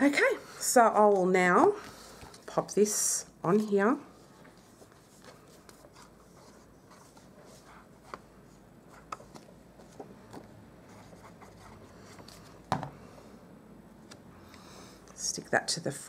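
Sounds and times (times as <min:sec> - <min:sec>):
soft paper rustling: 0:01.1 - 0:12.7.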